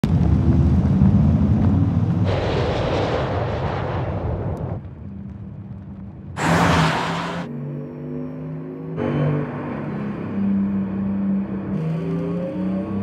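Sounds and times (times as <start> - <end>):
deep rumble: 0.0 - 7.5.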